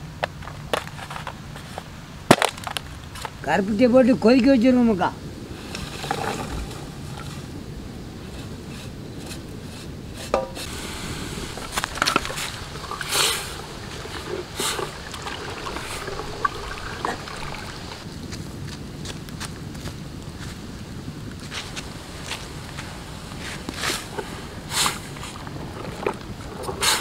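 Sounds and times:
water sloshing in metal pot: 0:11.5 - 0:18.0, 0:24.1 - 0:27.0.

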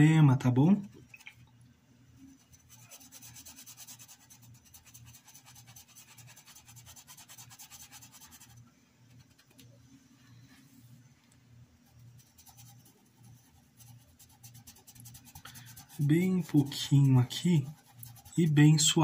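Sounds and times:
paintbrush scrubbing fabric: 0:02.2 - 0:08.6, 0:11.8 - 0:19.0.

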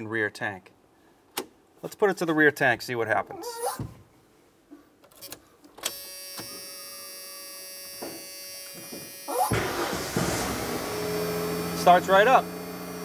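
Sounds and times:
electric fuel pump buzzing: 0:05.8 - 0:13.0
truck engine cranking and starting: 0:09.3 - 0:13.0.

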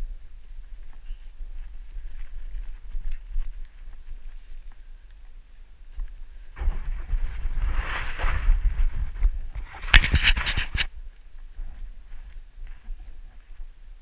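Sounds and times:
wind rumble on microphone: 0:00.0 - 0:14.0
rubbing on microphone: 0:06.6 - 0:10.9.

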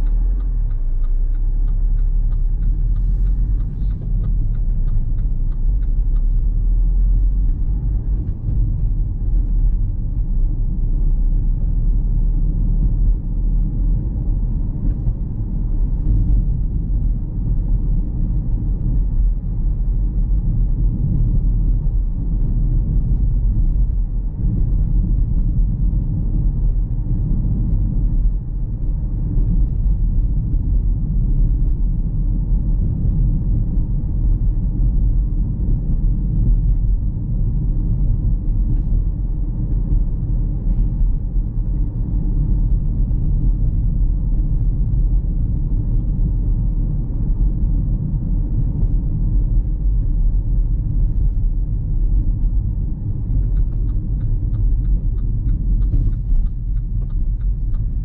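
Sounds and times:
car engine and tyres rumbling: 0:00.0 - 0:58.0.

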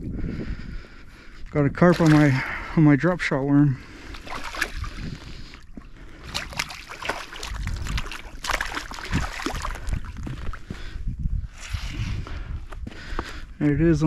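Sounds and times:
fish splashing and thrashing: 0:01.8 - 0:02.9, 0:03.8 - 0:11.1.

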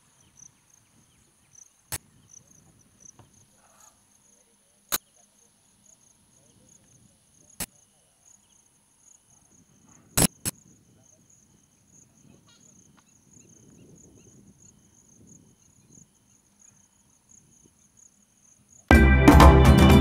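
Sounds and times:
insects chirring: 0:00.0 - 0:18.9
sharp clicks: 0:10.2 - 0:10.6.

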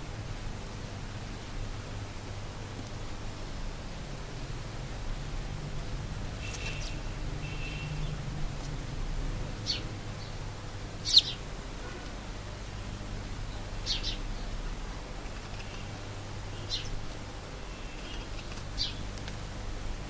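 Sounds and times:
low steady hum: 0:00.0 - 0:20.0
sparrows chirping: 0:06.4 - 0:08.3, 0:09.5 - 0:11.5, 0:13.3 - 0:19.2.

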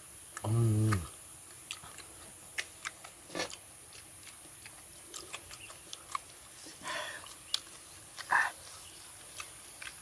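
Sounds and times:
soft chewing and mouth clicks: 0:00.2 - 0:10.0
man humming mmm: 0:00.4 - 0:01.1.

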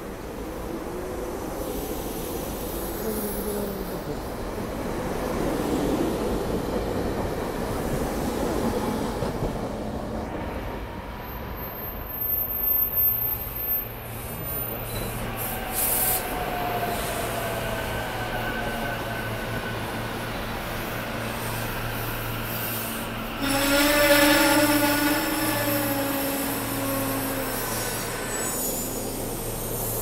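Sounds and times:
train cars rolling on rails: 0:00.0 - 0:30.0
electric train humming: 0:13.4 - 0:30.0.

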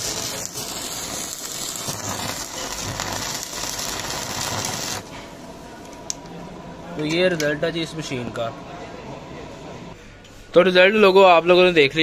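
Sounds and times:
welding arc crackling: 0:00.0 - 0:06.4.

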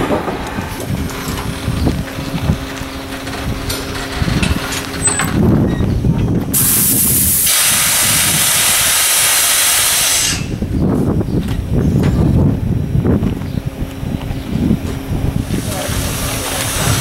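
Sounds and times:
steam locomotive rumbling: 0:00.0 - 0:17.0
steam hissing: 0:06.5 - 0:10.6, 0:15.4 - 0:17.0.

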